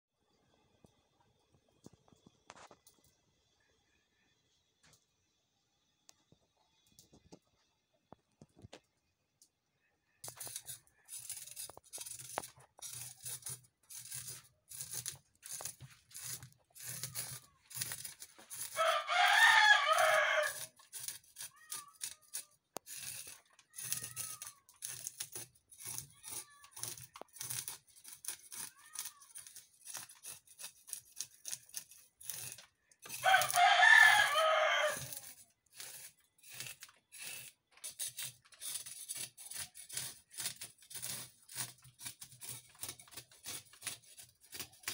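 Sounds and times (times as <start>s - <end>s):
knife scraping fish scales: 10.2s - 44.9s
rooster crowing: 18.6s - 20.7s, 33.1s - 35.3s.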